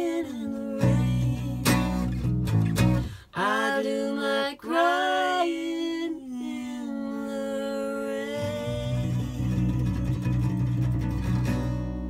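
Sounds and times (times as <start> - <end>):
acoustic guitar strumming: 0.0 - 3.2, 8.3 - 12.0
electric bass guitar: 0.8 - 3.2, 8.4 - 12.0.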